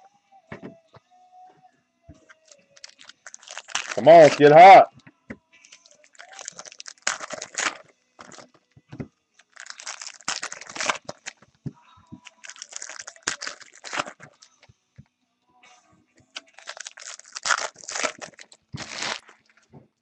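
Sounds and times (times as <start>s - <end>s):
card pack wrappers tearing: 2.4s - 4.8s, 5.7s - 8.4s, 9.4s - 11.4s, 12.3s - 14.4s, 16.4s - 19.5s
cards being handled: 2.4s - 4.8s, 5.7s - 8.5s, 9.4s - 11.4s, 12.2s - 14.5s, 16.4s - 19.5s.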